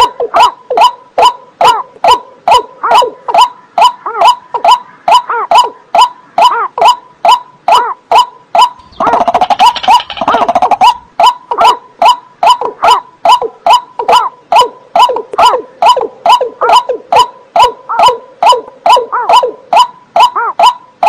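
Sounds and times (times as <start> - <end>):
marsh bird barking calls: 0.0 - 21.0
bird rattling calls: 3.8 - 12.6.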